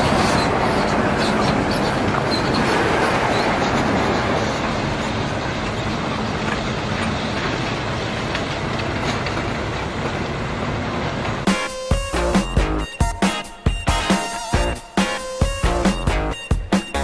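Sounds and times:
music: 0:11.4 - 0:17.0.

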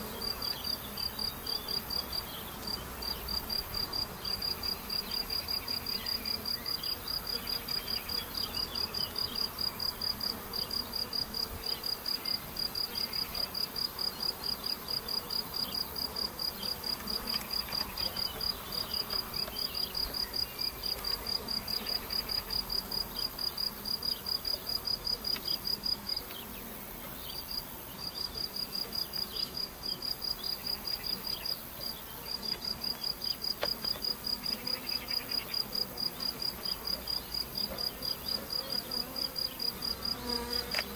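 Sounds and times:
honeybees buzzing: 0:00.0 - 0:40.9
cricket chirping: 0:27.2 - 0:40.9.

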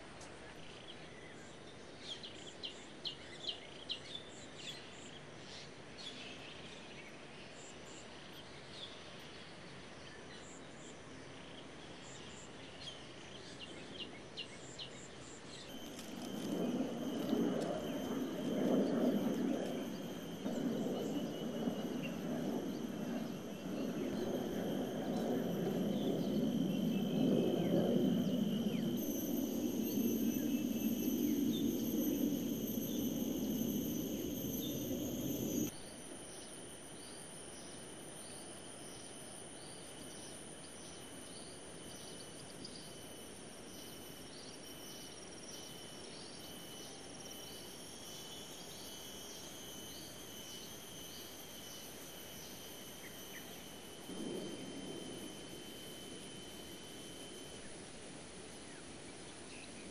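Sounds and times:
insects calling: 0:13.5 - 0:59.9
wavering low rumble: 0:15.7 - 0:35.7, 0:53.9 - 0:57.6.

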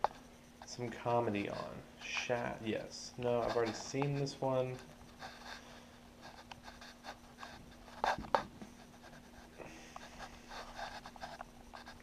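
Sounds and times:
game controller clicks and rustle: 0:00.0 - 0:05.2
faint steady hum: 0:00.0 - 0:12.0.

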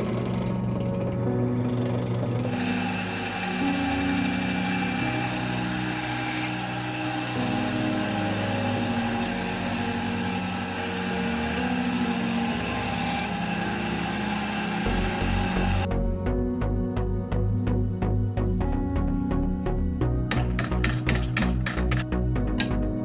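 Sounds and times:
band saw cutting wood: 0:00.0 - 0:15.9.

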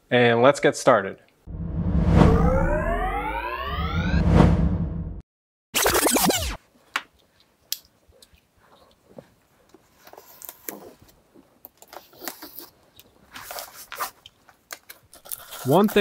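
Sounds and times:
falling swoosh: 0:01.5 - 0:05.2.

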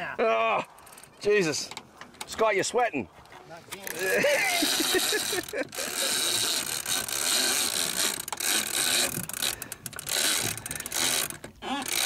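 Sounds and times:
fishing reel cranking: 0:03.7 - 0:12.0.

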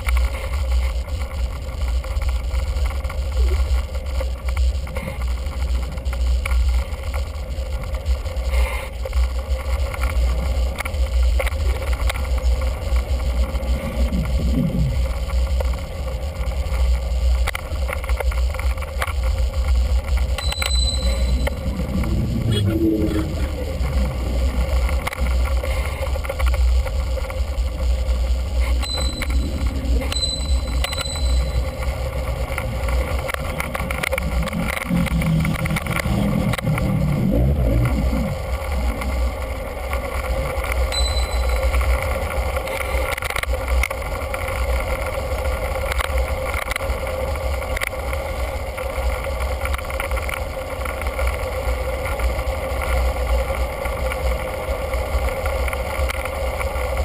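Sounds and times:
bicycle riding noise: 0:00.0 - 0:57.0
steady hum: 0:00.0 - 0:57.0
wind rumble: 0:00.0 - 0:57.0
brief high rings: 0:20.4 - 0:21.6, 0:28.8 - 0:31.8, 0:40.9 - 0:41.8.

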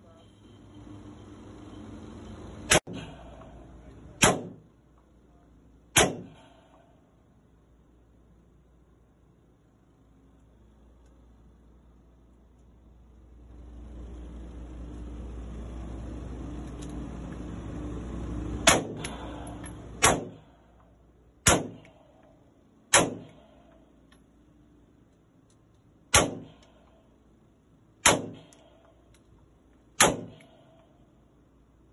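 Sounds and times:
pistol shots echoing indoors: 0:04.1 - 0:04.7, 0:05.9 - 0:06.6, 0:18.6 - 0:20.5, 0:21.4 - 0:22.3, 0:22.9 - 0:23.8, 0:26.0 - 0:26.9, 0:28.0 - 0:29.0, 0:29.9 - 0:30.9.

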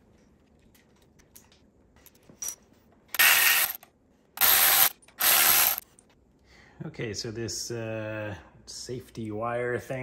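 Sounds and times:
tools and parts clicking: 0:00.1 - 0:06.2
ratchet wrench turning bolt: 0:04.4 - 0:05.8.

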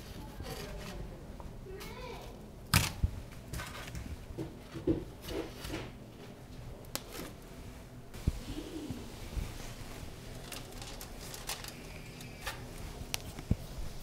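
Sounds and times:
donuts knocking on plastic tray: 0:04.4 - 0:05.1.

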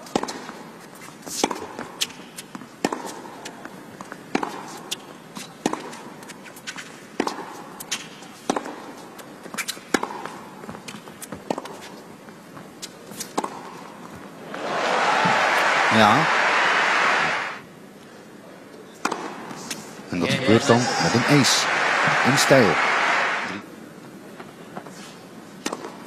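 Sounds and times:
crowd murmur: 0:14.4 - 0:17.6, 0:20.3 - 0:23.6.

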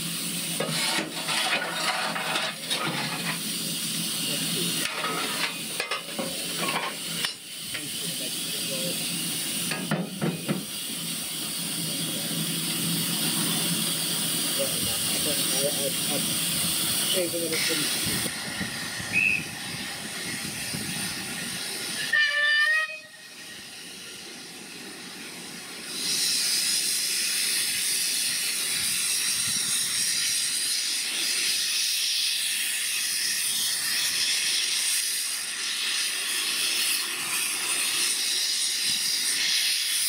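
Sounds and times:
escaping steam hissing: 0:00.0 - 0:40.0
steam locomotive whistle blast: 0:19.1 - 0:19.6, 0:21.9 - 0:23.5.

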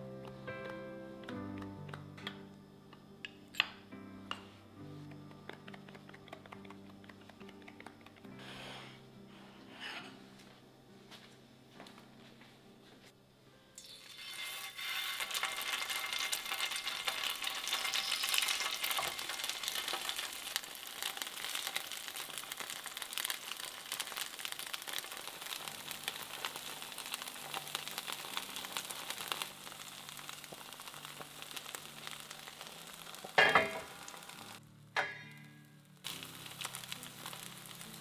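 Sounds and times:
patties sizzling in a pan: 0:13.8 - 0:34.6, 0:35.7 - 0:38.0.

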